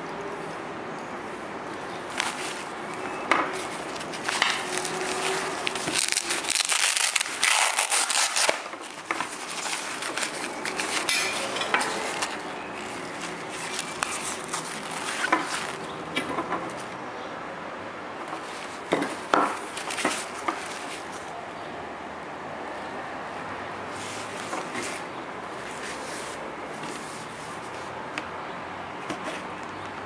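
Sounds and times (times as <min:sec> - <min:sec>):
nylon fabric rustling: 0:02.1 - 0:15.9, 0:18.3 - 0:21.3, 0:23.9 - 0:27.9.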